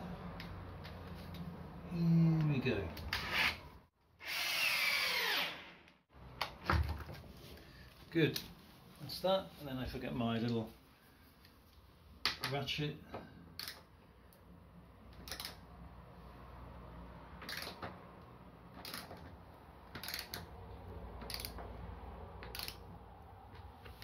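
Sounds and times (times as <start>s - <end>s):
socket ratchet clicking: 13.6s - 13.9s, 15.1s - 15.6s, 17.4s - 17.8s, 18.7s - 19.2s, 19.9s - 20.5s, 21.2s - 21.6s, 22.4s - 22.9s.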